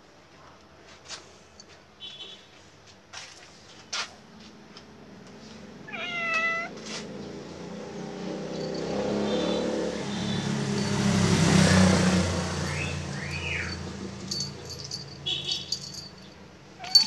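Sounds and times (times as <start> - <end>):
motor vehicle passing: 5.1 - 17.0
cat meowing: 5.9 - 6.8, 16.8 - 17.0.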